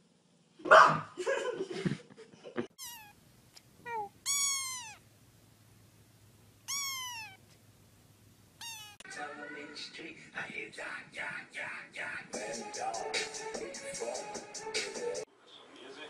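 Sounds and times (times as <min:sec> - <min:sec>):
kitten meowing: 0:02.8 - 0:03.2, 0:03.8 - 0:05.0, 0:06.6 - 0:07.4, 0:08.6 - 0:09.0.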